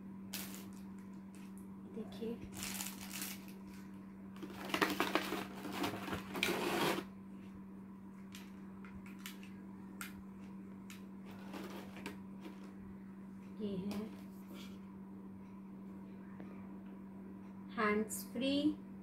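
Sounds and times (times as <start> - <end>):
plastic blister pack crinkling: 2.5 - 6.8.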